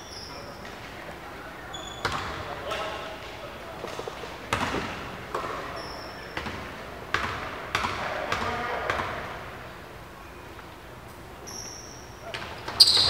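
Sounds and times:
high squeak: 0:12.8 - 0:13.0.

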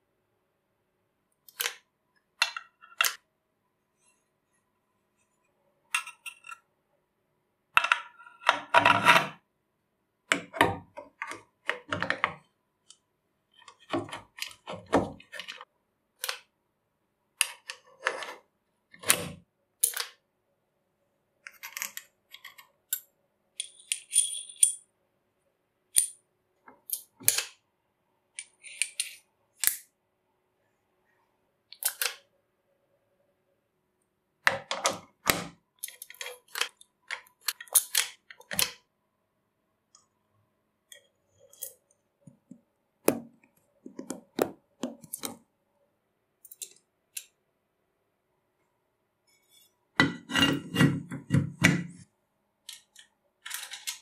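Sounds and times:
metal parts clinking and scraping: 0:21.5 - 0:24.8, 0:52.7 - 0:54.0.

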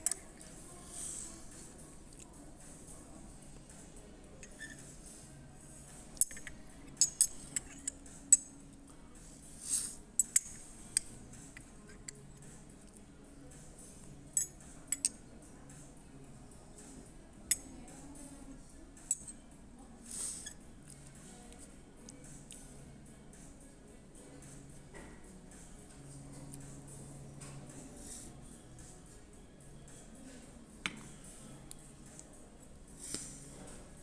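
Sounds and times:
metal spoon scraping ceramic dish: 0:04.4 - 0:04.9, 0:06.2 - 0:08.4.

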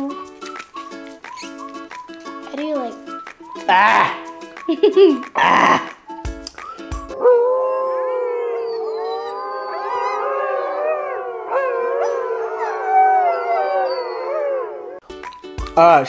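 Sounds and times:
dogs howling: 0:07.2 - 0:15.0.

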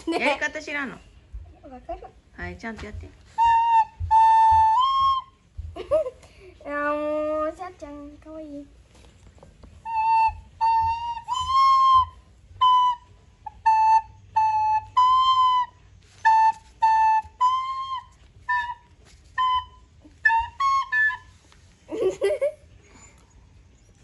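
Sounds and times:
child playing a recorder: 0:03.3 - 0:05.7, 0:09.8 - 0:21.5.

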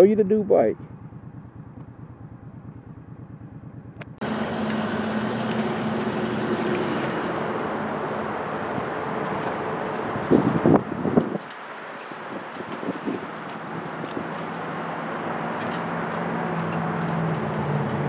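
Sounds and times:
motorcycle engine idling: 0:00.0 - 0:11.4
steady rushing noise: 0:00.0 - 0:18.0
low hum: 0:00.7 - 0:11.1.

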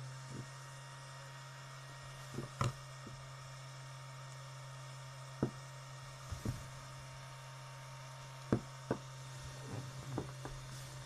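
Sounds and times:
steady low hum: 0:00.0 - 0:11.0
knocks on wooden tabletop: 0:02.3 - 0:02.8, 0:05.4 - 0:05.6, 0:06.3 - 0:06.7, 0:08.5 - 0:09.1, 0:09.7 - 0:10.6.

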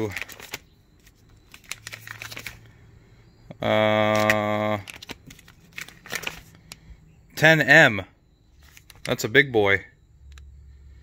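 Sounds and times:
plastic sleeve pages crinkling: 0:00.0 - 0:02.7, 0:04.1 - 0:06.8, 0:08.6 - 0:09.2.

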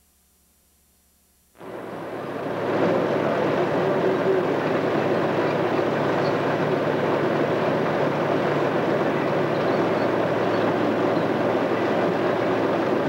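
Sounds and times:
bulldozer diesel engine droning: 0:01.6 - 0:13.0.

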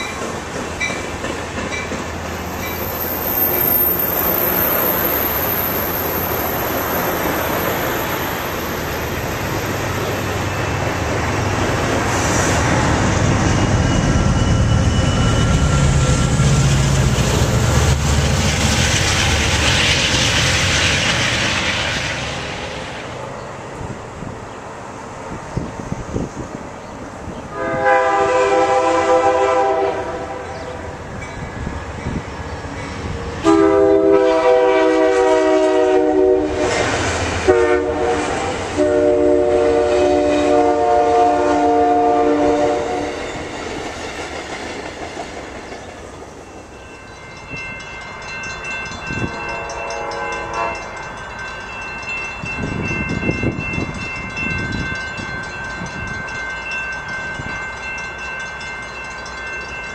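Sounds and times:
passing train rumble: 0:00.0 - 0:59.9
steady high ringing: 0:13.3 - 0:16.1, 0:46.3 - 0:59.9
train horn blasts: 0:27.5 - 0:30.8, 0:33.4 - 0:43.2, 0:49.2 - 0:51.0.

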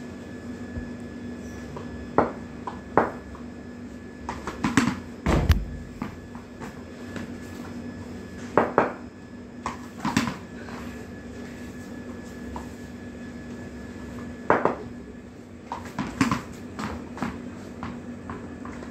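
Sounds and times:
steady low hum: 0:00.0 - 0:18.9
tennis ball bouncing on hard floor: 0:14.5 - 0:14.8.

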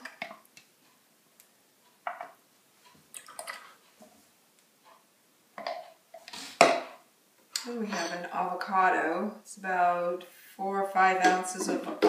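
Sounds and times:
wet drips: 0:03.1 - 0:03.8.

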